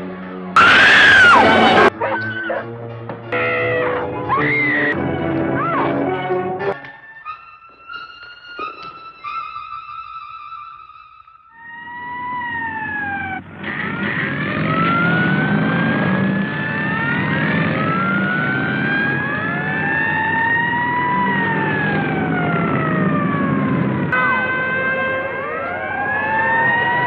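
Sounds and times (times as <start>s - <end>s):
vehicle sirens wailing: 0.6s - 6.8s, 11.6s - 27.0s.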